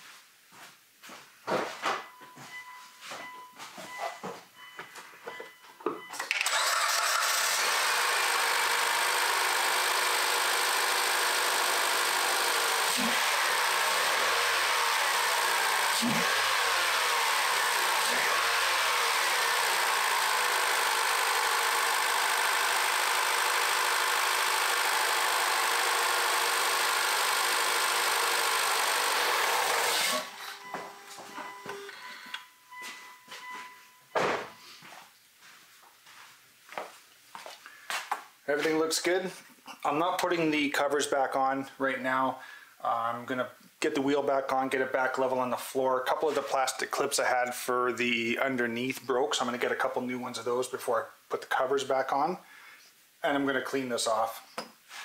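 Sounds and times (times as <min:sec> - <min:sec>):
car engine starting and idling: 0:06.0 - 0:33.2.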